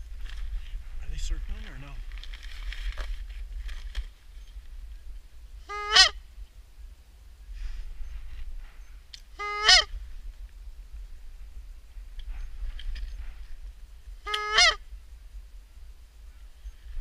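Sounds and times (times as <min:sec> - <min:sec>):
goose honks: 0:05.7 - 0:06.2, 0:09.4 - 0:09.9, 0:14.3 - 0:14.8.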